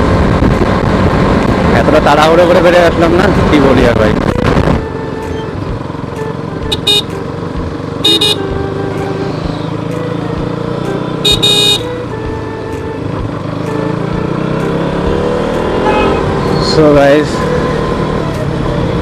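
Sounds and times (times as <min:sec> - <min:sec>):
motorcycle engine running: 0:00.0 - 0:19.0
vehicle horn beeping: 0:06.6 - 0:07.2, 0:08.0 - 0:08.6, 0:11.2 - 0:11.9, 0:15.7 - 0:16.6.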